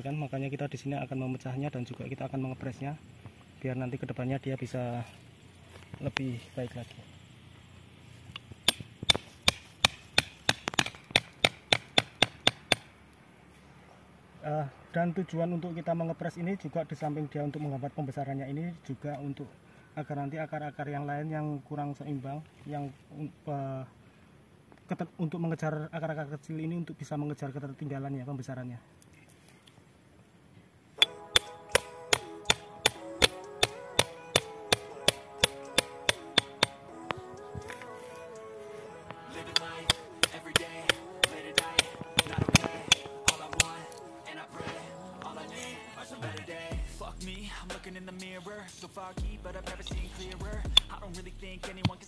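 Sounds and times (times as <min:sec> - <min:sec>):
hammer striking steel blade: 0:08.7 - 0:12.9, 0:31.0 - 0:36.8, 0:39.5 - 0:44.0.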